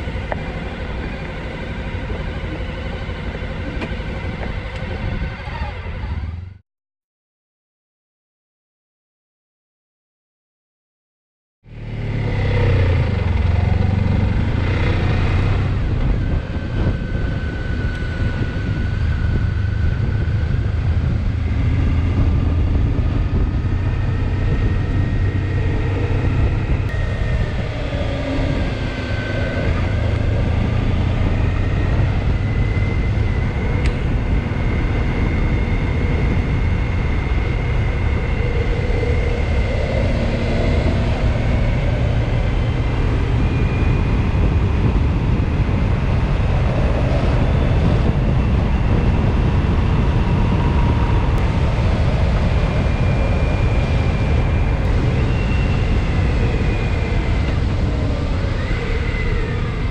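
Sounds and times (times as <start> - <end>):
road and wind noise: 0.0 - 6.6, 11.6 - 59.9
motorcycle engine running: 11.7 - 58.8.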